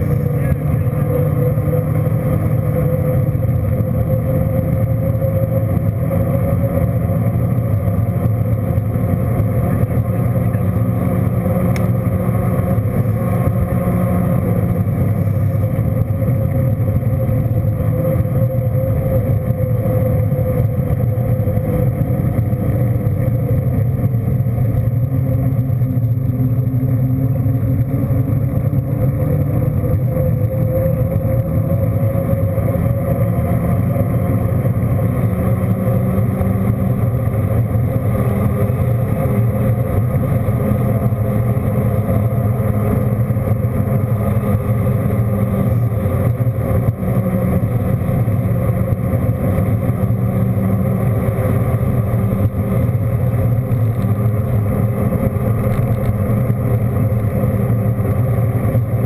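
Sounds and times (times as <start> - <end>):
road noise: 0.0 - 59.0
vehicle engine hum: 0.0 - 59.0.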